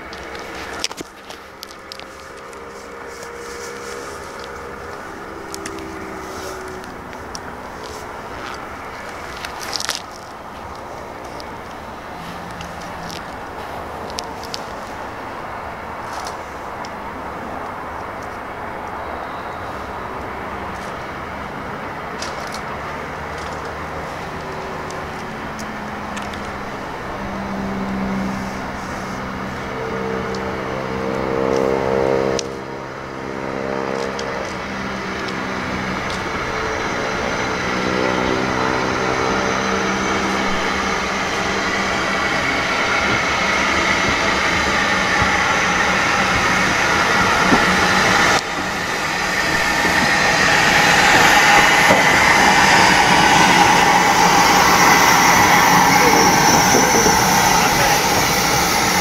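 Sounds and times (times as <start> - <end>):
steam locomotive exhaust: 0.0 - 59.0
train wheel noise: 0.0 - 59.0
low droning tone: 29.4 - 59.0.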